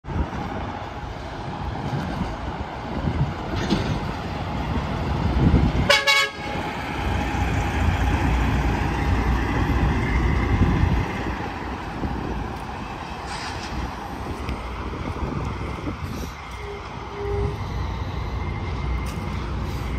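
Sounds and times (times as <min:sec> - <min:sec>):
heavy highway traffic: 0:00.0 - 0:19.9
truck air horn blast: 0:05.8 - 0:06.6, 0:16.5 - 0:17.6.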